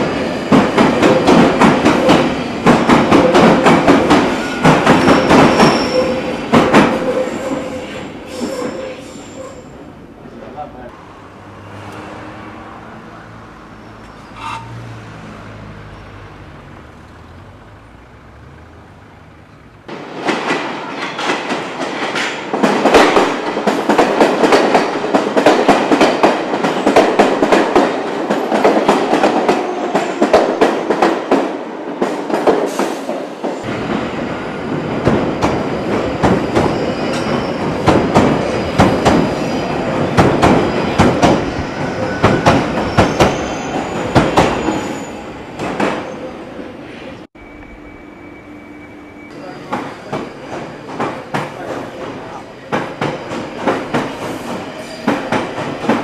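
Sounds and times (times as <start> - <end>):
train wheels clattering on rails: 0.0 - 9.0, 19.9 - 46.1, 49.4 - 56.0
heavy train rumble: 0.0 - 11.4, 12.0 - 56.0.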